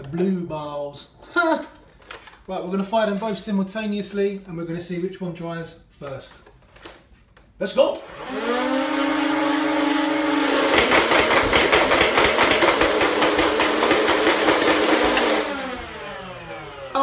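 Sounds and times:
toy blaster rapid firing: 10.7s - 14.8s.

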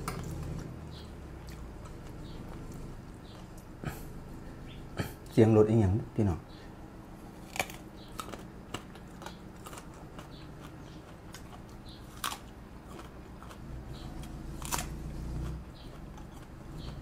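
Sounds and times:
chewing: 0.0s - 5.4s, 7.2s - 17.0s
crunchy bites: 7.3s - 17.0s.

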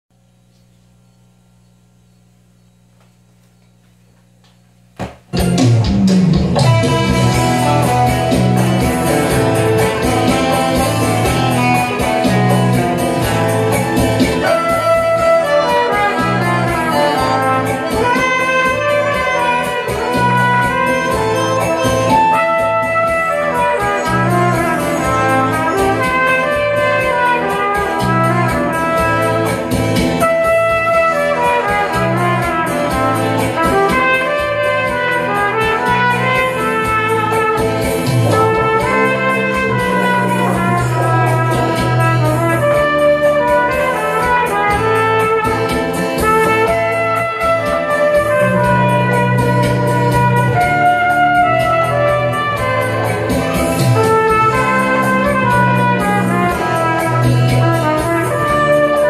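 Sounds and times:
bass line: 0.2s - 59.0s
regular beat: 2.8s - 59.0s
trumpet melody: 5.3s - 59.0s.

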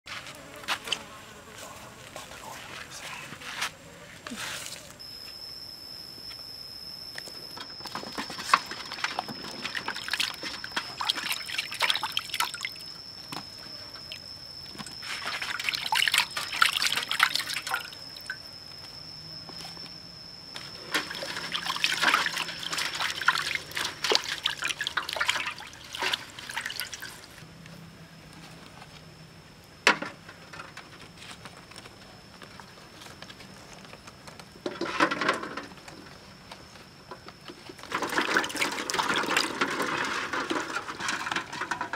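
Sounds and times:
water splashing in a basin: 8.0s - 12.8s, 14.8s - 18.4s, 20.9s - 27.4s, 37.9s - 40.7s
water dripping and trickling: 9.0s - 12.8s, 15.3s - 18.4s, 21.1s - 27.4s.

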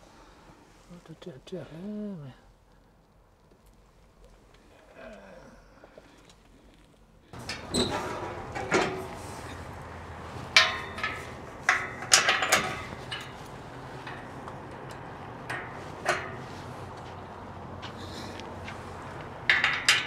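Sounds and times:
low engine hum: 7.4s - 20.0s
sharp knocks and clanks: 7.4s - 20.0s.

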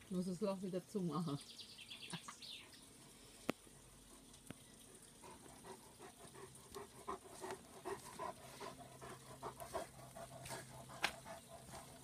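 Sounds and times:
dog panting: 5.2s - 12.0s.

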